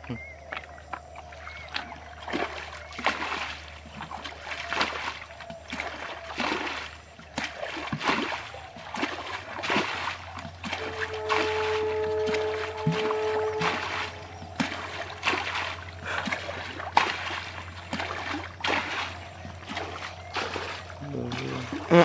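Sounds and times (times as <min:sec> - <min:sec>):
water splashing from bucket: 0:01.2 - 0:22.0
steady musical tone: 0:10.7 - 0:16.1.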